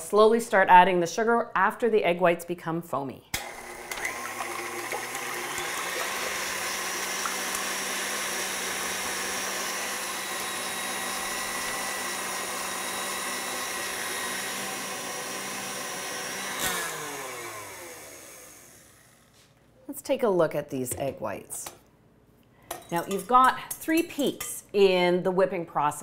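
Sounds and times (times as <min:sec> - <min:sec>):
stand mixer whisking: 0:03.4 - 0:19.0.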